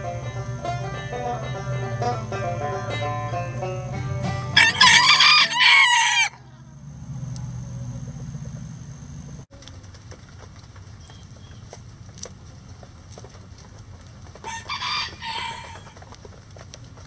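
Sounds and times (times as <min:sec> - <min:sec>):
banjo music: 0:00.0 - 0:05.7
rooster crowing: 0:00.3 - 0:06.8, 0:14.4 - 0:16.0.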